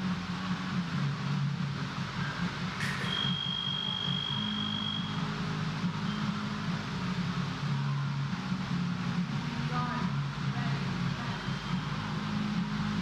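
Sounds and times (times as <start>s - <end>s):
steady low hum: 0.0s - 13.0s
scoring machine high tone: 3.0s - 5.3s.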